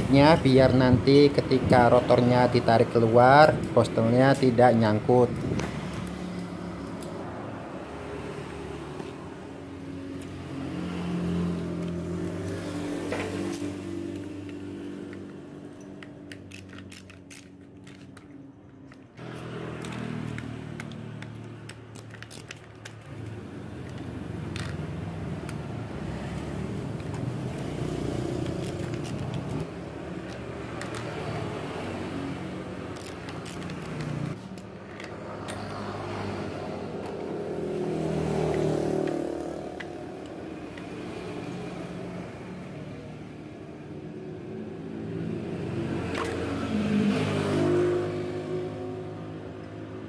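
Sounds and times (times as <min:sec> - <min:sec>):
vehicles passing by: 0:00.0 - 0:50.0
metal clicks and rattles of drill: 0:19.8 - 0:23.0.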